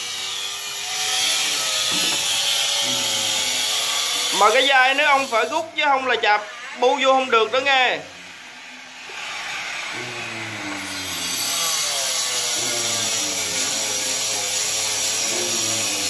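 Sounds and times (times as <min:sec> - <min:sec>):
small motor running: 0:00.0 - 0:05.6, 0:10.0 - 0:16.0.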